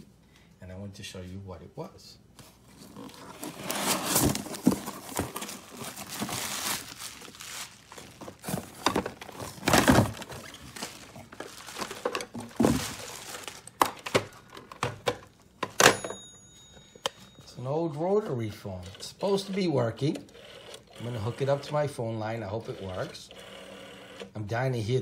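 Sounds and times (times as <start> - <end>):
cardboard crinkling and rustling: 2.5 - 15.2
telephone thunking on table: 14.0 - 16.2.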